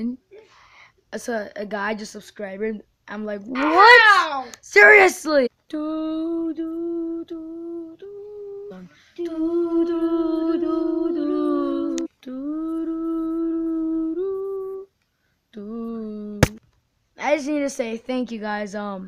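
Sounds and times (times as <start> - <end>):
person humming held notes: 5.8 - 14.9.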